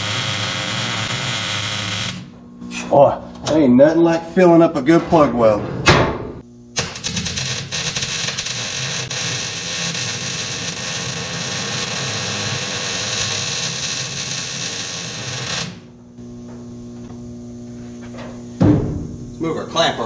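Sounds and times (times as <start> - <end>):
welder arc crackling: 0.0 - 2.3, 6.7 - 15.9.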